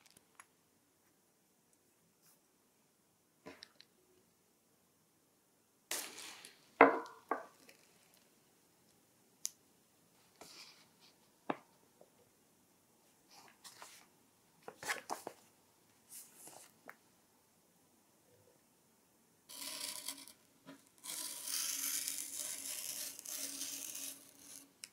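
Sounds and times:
paper rustling: 0:13.3 - 0:15.5, 0:16.1 - 0:16.8.

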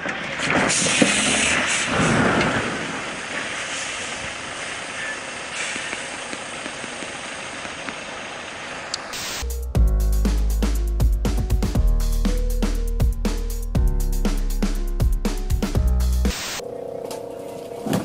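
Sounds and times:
hiss: 0:00.4 - 0:09.4.

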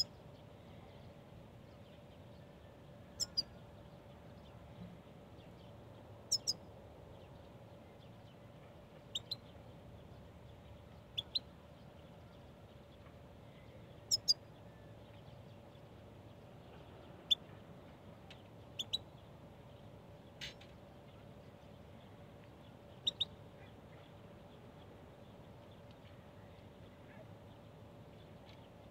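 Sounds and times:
goldfinch calls: 0:03.2 - 0:03.5, 0:06.3 - 0:06.6, 0:14.1 - 0:14.4, 0:18.8 - 0:19.0, 0:23.0 - 0:23.3.

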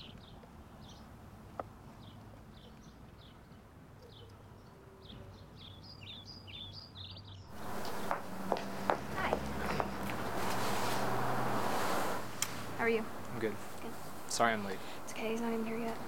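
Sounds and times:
small birds chirping: 0:02.0 - 0:16.0
hissy background noise: 0:07.5 - 0:16.0.

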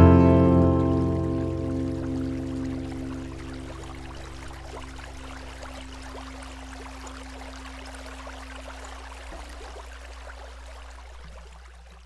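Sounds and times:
cello and acoustic guitar notes: 0:00.0 - 0:03.8.

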